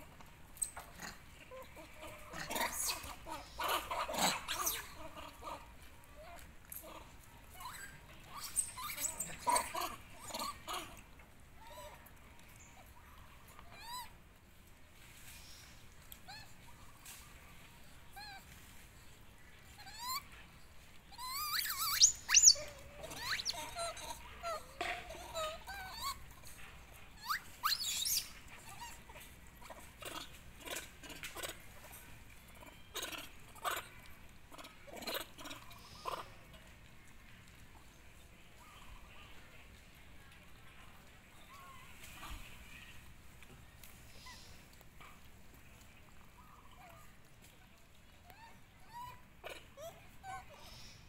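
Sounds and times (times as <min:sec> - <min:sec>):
monkeys crying harshly: 0:01.4 - 0:05.7, 0:07.6 - 0:11.0, 0:19.7 - 0:20.3, 0:21.1 - 0:26.5, 0:27.2 - 0:36.5.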